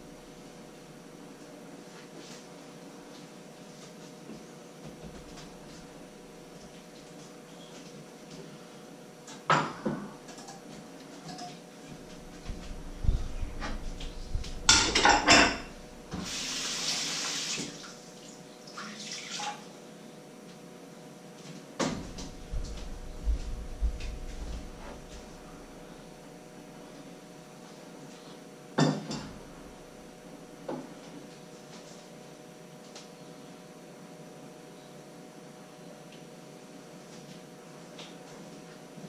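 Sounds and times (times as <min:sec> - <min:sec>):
dishes and pans clattering: 0:14.7 - 0:15.8, 0:28.8 - 0:29.4.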